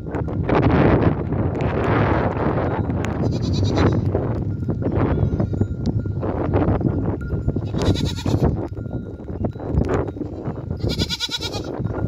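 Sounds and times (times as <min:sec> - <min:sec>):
goats bleating: 0:03.2 - 0:04.0, 0:07.6 - 0:08.5, 0:10.8 - 0:11.7.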